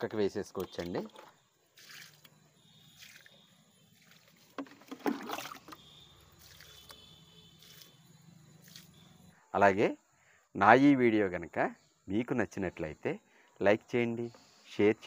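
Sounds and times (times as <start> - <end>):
liquid splashing onto soil: 1.8 - 8.0.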